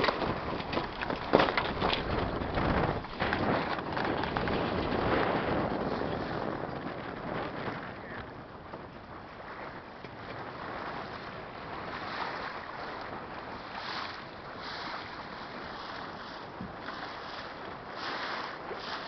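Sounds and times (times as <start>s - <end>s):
water rushing along boat hull: 0.0s - 19.0s
wind buffeting microphone: 0.0s - 19.0s.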